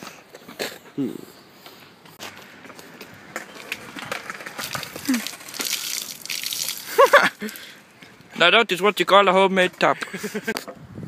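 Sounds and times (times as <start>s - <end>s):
water pouring and splashing: 4.4s - 7.8s.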